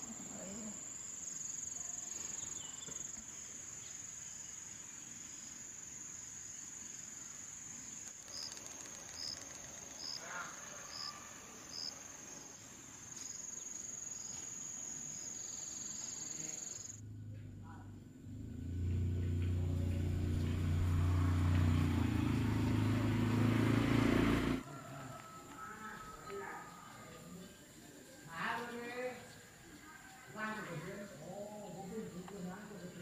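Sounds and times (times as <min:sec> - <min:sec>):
insects trilling: 0:00.0 - 0:17.1, 0:24.6 - 0:33.0.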